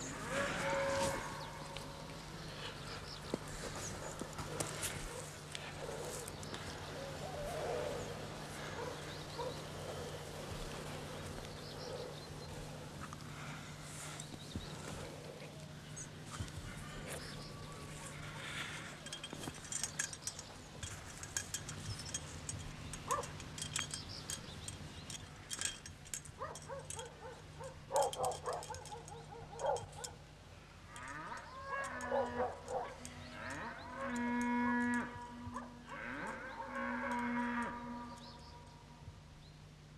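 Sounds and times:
cattle mooing: 0.0s - 2.1s, 30.9s - 38.2s
steady low hum: 0.0s - 39.9s.

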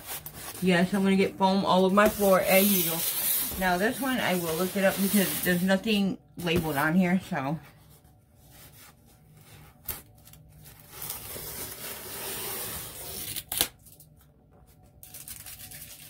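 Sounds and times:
packing tape tearing off box: 9.8s - 14.1s.

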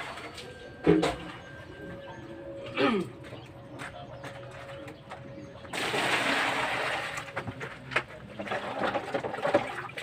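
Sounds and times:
water pouring into plastic basin: 5.7s - 7.6s, 8.3s - 10.0s.

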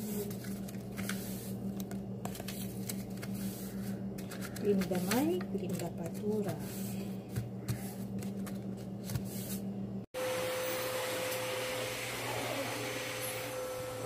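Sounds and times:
paper banknotes rustling: 0.0s - 9.6s
vacuum cleaner motor whining: 10.2s - 14.0s.

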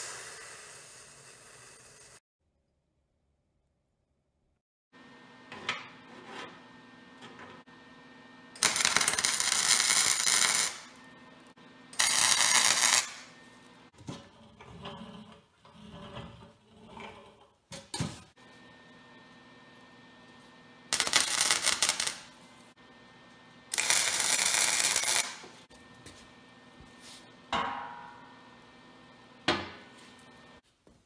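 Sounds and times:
arc welding crackling: 8.6s - 11.0s, 12.0s - 13.3s, 20.9s - 22.4s, 23.7s - 25.5s.

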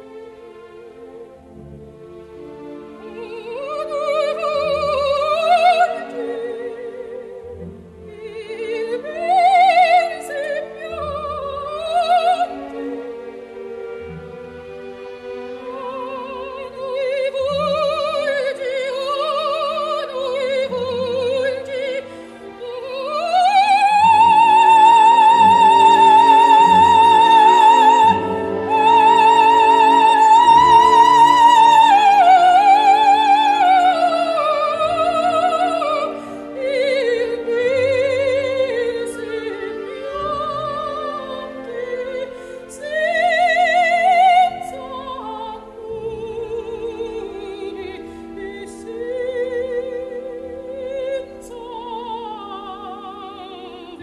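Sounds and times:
orchestral accompaniment: 0.0s - 54.0s
operatic singing: 0.9s - 54.0s.

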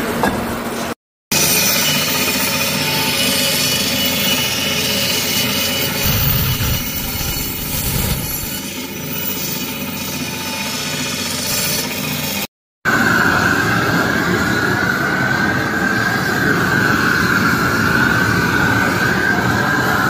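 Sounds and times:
band saw cutting meat and bone: 1.3s - 12.5s.

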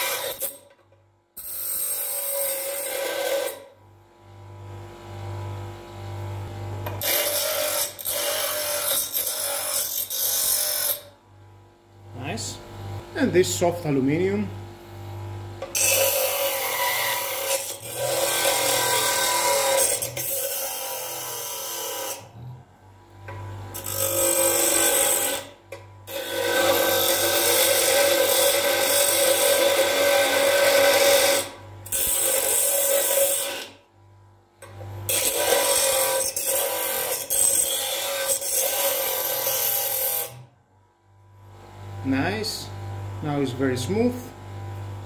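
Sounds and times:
metal grinding on grinder wheel: 0.0s - 0.7s, 1.4s - 3.7s, 6.8s - 11.1s, 15.6s - 22.6s, 23.3s - 33.8s, 35.1s - 40.5s
bench grinder motor humming: 1.4s - 11.2s, 12.0s - 40.5s.

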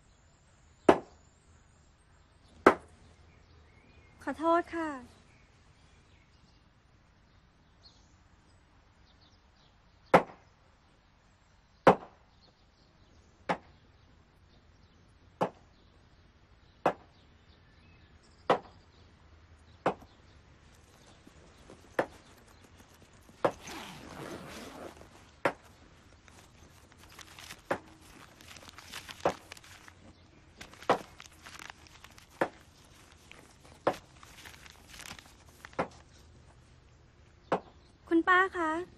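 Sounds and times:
paper rustling: 20.6s - 36.6s.

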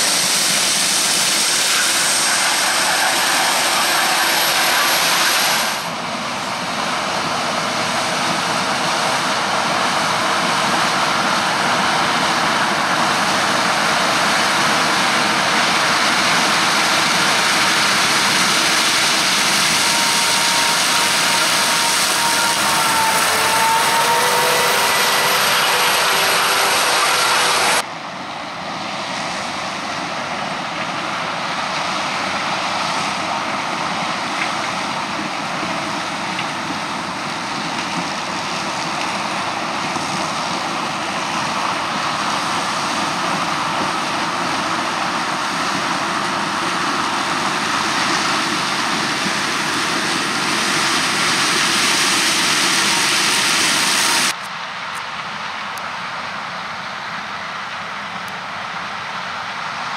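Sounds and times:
combine harvester roar: 0.0s - 59.9s
machine whine: 12.2s - 27.8s.

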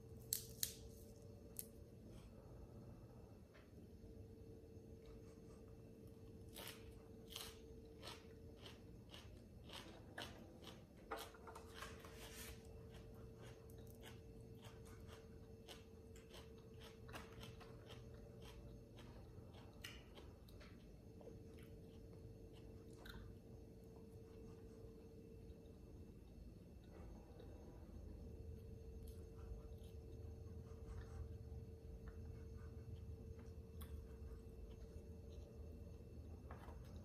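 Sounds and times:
chewing crisp herbs: 5.0s - 24.7s.

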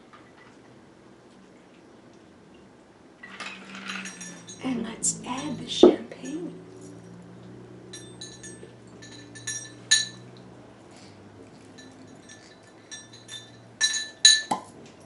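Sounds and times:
glass clinks and taps: 3.3s - 4.7s, 7.9s - 10.4s, 11.6s - 14.8s.

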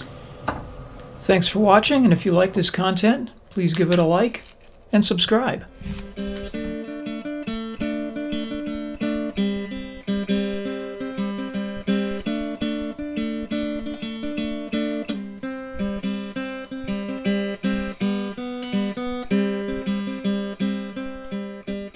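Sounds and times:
acoustic guitar strumming: 5.6s - 21.9s.

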